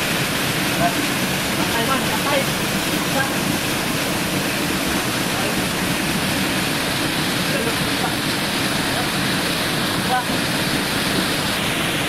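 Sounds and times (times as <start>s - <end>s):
waterfall rushing over rocks: 0.0s - 12.0s.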